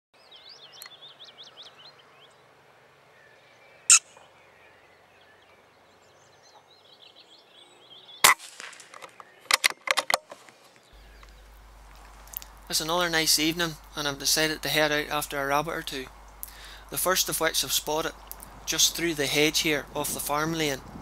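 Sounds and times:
small birds chirping: 0:00.2 - 0:08.3, 0:08.9 - 0:09.6, 0:10.4 - 0:21.0
sharp shot-like crack: 0:08.2 - 0:09.2.

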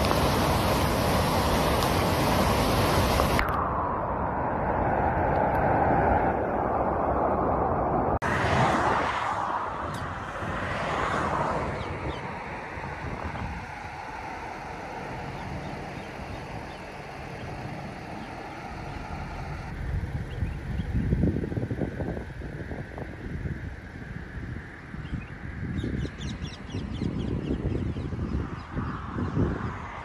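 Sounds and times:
floodwater rushing: 0:00.0 - 0:03.6, 0:08.2 - 0:19.7
wind gusting on microphone: 0:00.0 - 0:30.0.

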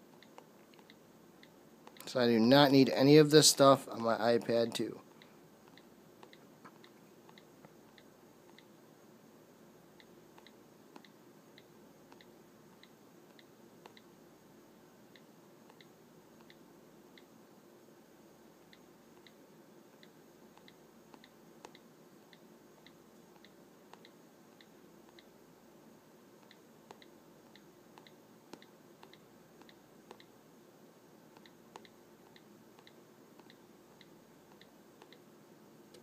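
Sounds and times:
on-screen keyboard clicks: 0:00.1 - 0:02.1, 0:05.6 - 0:08.7, 0:10.0 - 0:14.1, 0:15.2 - 0:16.6, 0:20.0 - 0:25.3, 0:26.4 - 0:30.4, 0:31.3 - 0:35.2.

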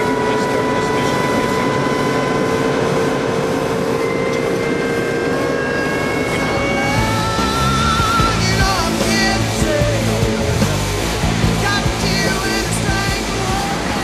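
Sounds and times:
diesel engine droning: 0:00.0 - 0:14.0
drivetrain whine: 0:00.0 - 0:14.0
road noise: 0:00.0 - 0:14.0.

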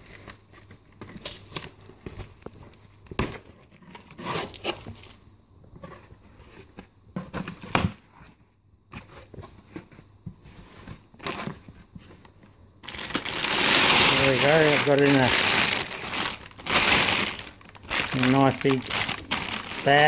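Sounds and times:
cardboard flaps scraping and rustling: 0:05.8 - 0:12.3, 0:12.9 - 0:20.0
packing tape tearing: 0:12.9 - 0:20.0.

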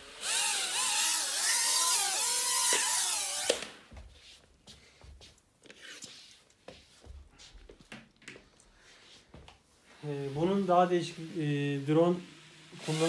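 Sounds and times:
mini quadcopter motors whining: 0:00.0 - 0:03.7.

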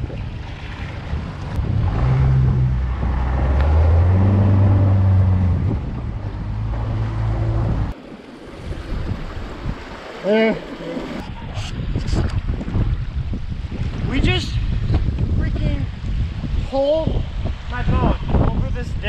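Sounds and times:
outboard motor running: 0:00.0 - 0:08.0
wind noise: 0:00.0 - 0:10.2, 0:10.8 - 0:19.0
rushing water: 0:00.0 - 0:19.0.

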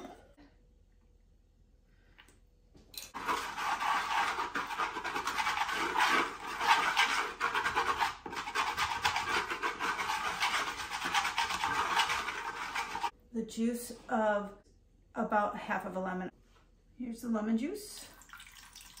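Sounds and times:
wooden spoon scraping wooden bowl: 0:03.2 - 0:13.1.

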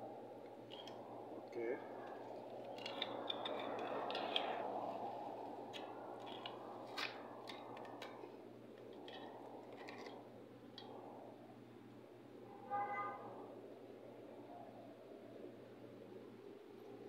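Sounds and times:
light rustling of cables: 0:00.0 - 0:11.3
steady background hum: 0:00.0 - 0:17.0
small plastic clicks: 0:02.0 - 0:05.1, 0:05.7 - 0:11.0.

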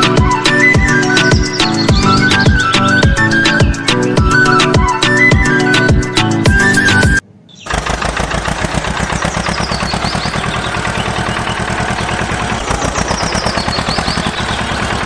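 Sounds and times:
tractor diesel engine chugging: 0:07.6 - 0:15.0.

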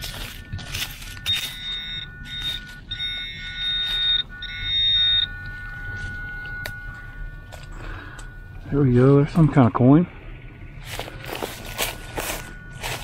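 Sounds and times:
faint steady lower tone: 0:00.0 - 0:13.0
high-pitched detector alarm tone: 0:00.0 - 0:13.0
soil scraping: 0:10.8 - 0:13.0.

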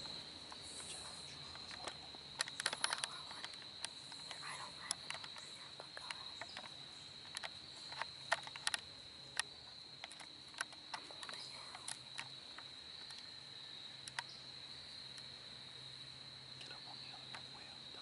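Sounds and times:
crickets trilling: 0:00.0 - 0:18.0
sharp clicks and crackles: 0:00.5 - 0:13.3, 0:14.0 - 0:14.3.

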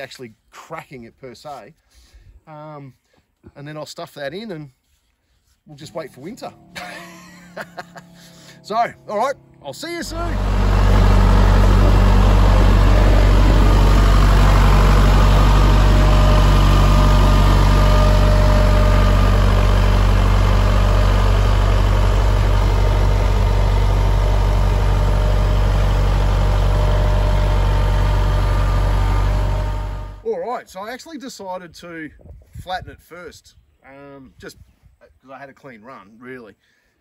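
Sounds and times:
tractor diesel engine running: 0:05.8 - 0:30.3.

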